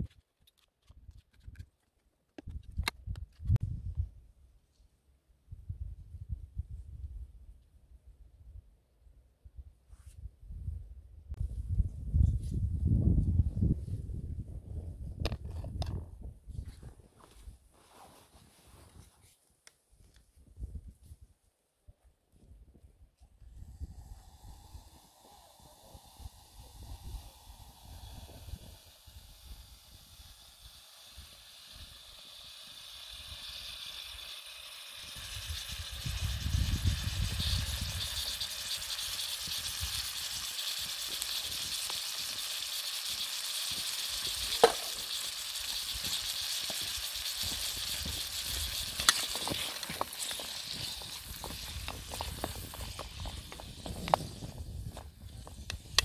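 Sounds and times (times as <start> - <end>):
tomatoes sizzling in oil: 24.0 - 54.6
sharp pops: 37.2 - 54.5.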